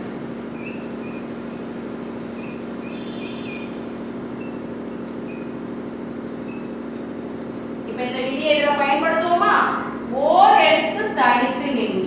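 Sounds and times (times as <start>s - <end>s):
steady low hum: 0.0s - 12.0s
chalk squeaking on blackboard: 0.5s - 6.8s.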